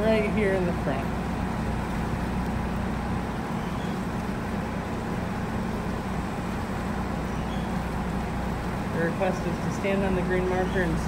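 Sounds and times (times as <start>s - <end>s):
ferry engines droning: 0.0s - 11.0s.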